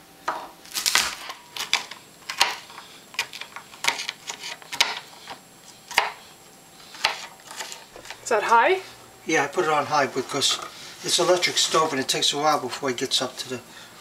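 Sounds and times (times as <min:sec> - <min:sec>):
knife chopping on plastic board: 0:01.6 - 0:06.2, 0:07.0 - 0:07.3.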